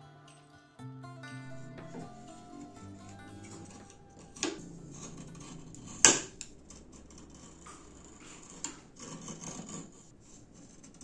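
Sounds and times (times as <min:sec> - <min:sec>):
faint low hum: 0:01.3 - 0:11.0.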